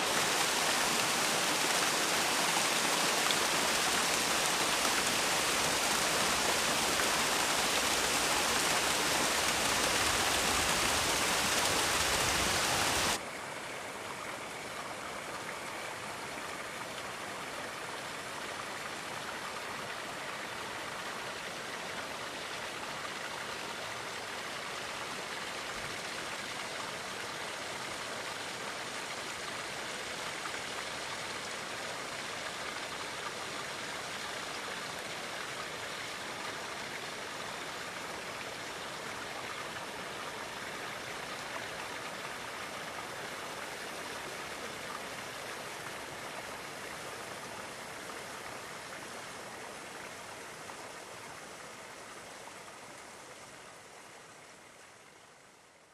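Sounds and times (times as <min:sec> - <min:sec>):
waterfall rushing over rock: 0:00.0 - 0:13.2.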